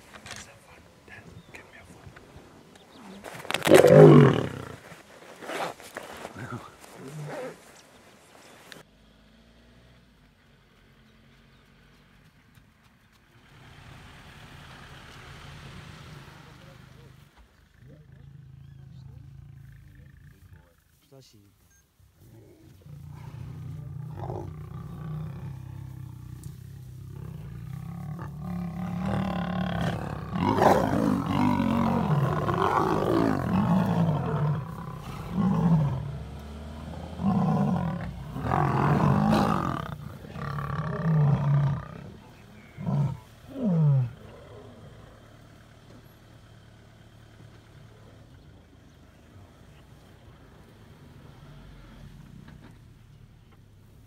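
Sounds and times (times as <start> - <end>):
lion grunts: 3.0 - 4.8, 22.5 - 45.0
lions roaring: 3.5 - 4.8, 22.7 - 45.0.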